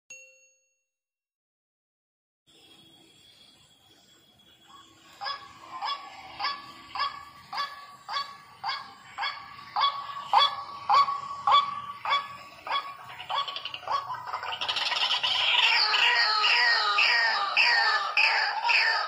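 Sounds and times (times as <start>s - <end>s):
waterhen calling: 5.2s - 19.0s.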